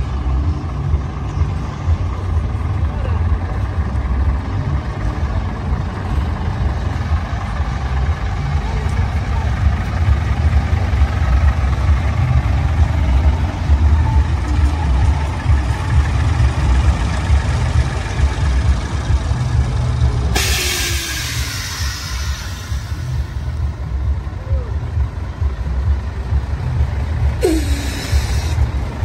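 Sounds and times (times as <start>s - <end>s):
diesel truck engine rumbling: 0.0s - 29.0s
air brakes hissing: 20.3s - 23.7s, 27.4s - 28.9s.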